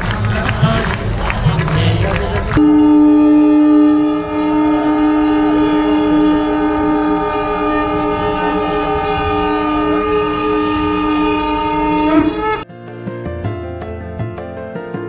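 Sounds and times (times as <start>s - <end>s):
conch shell blown: 2.6s - 12.6s.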